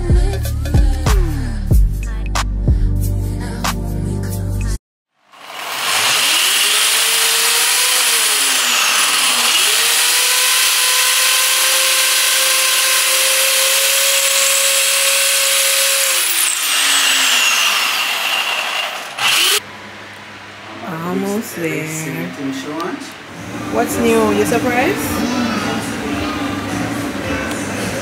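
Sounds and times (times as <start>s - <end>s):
electric motor running: 5.3s - 19.6s.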